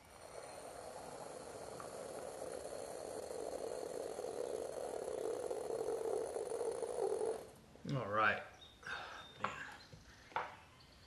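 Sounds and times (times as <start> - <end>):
coffee press rushing hiss: 0.0 - 7.5.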